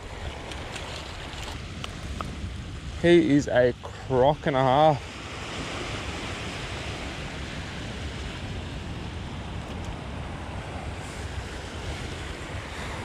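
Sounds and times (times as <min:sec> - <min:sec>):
small waves washing ashore: 0:00.0 - 0:13.0
wind on microphone: 0:00.0 - 0:13.0.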